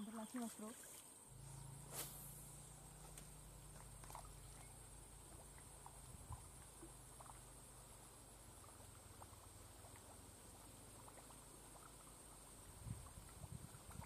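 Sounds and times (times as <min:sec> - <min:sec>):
steady high hiss: 0:00.9 - 0:03.7.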